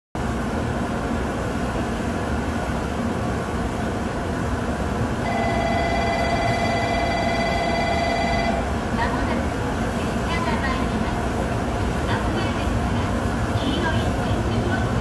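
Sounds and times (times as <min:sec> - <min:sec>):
train rumble: 0:00.2 - 0:15.0
steady high ringing tone: 0:05.2 - 0:08.8.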